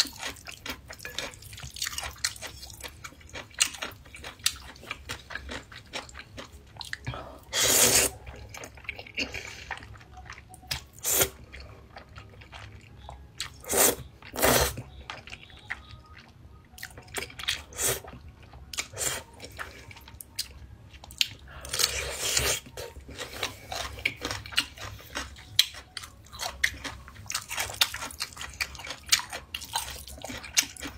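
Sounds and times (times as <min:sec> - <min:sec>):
wet chewing: 0:00.0 - 0:30.9
slurping noodles: 0:07.5 - 0:08.2, 0:13.6 - 0:14.8.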